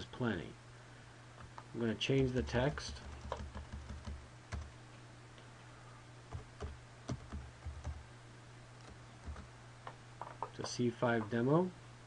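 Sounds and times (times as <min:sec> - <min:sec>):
low steady hum: 0:00.0 - 0:12.0
computer keyboard typing: 0:02.3 - 0:04.7, 0:06.3 - 0:08.0, 0:08.8 - 0:09.5.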